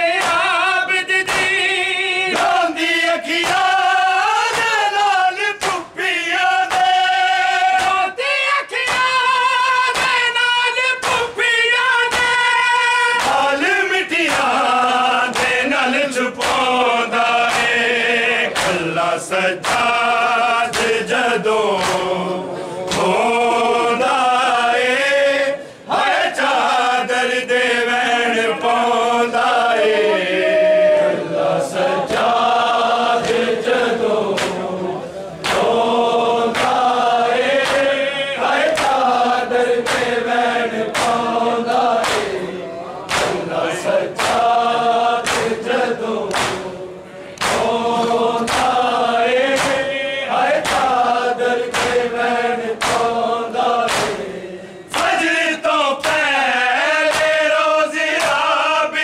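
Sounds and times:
men singing in unison: 0.0 - 59.0
hands slapping chests: 0.2 - 0.5, 1.2 - 1.6, 2.3 - 2.6, 3.3 - 3.8, 4.5 - 4.8, 5.5 - 5.9, 6.6 - 7.0, 7.7 - 8.0, 8.8 - 9.2, 9.9 - 10.4, 11.0 - 11.4, 12.0 - 12.6, 13.2 - 15.8, 16.4 - 24.1, 31.8 - 54.3, 54.9 - 55.3, 56.0 - 56.4, 57.0 - 58.6.

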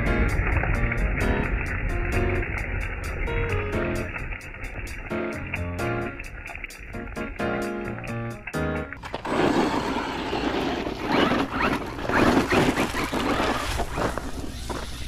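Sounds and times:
background music: 0.0 - 9.0
rc truck tyres scraping rough ground: 9.0 - 15.0.

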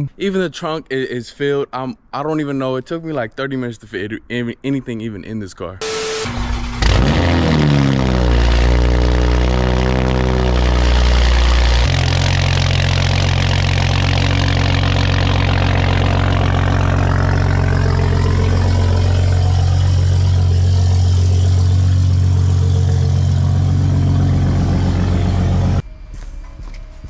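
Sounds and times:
car engine droning: 5.8 - 25.9.

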